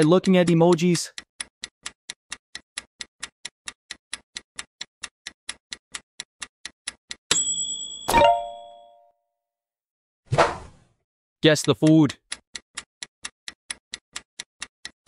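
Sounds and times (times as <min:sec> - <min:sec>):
clock ticking: 0:00.0 - 0:07.5, 0:11.4 - 0:15.0
high ringing time-up tone: 0:07.3 - 0:09.1.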